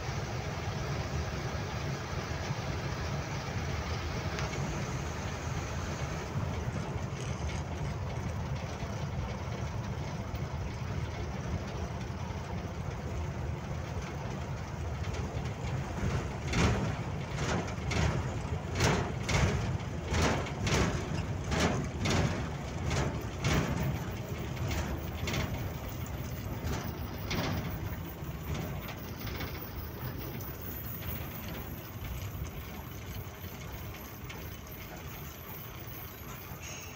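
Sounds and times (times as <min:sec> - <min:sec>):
truck engine and road noise: 0:00.0 - 0:36.9
tyres thumping over rumble strips: 0:14.3 - 0:33.2.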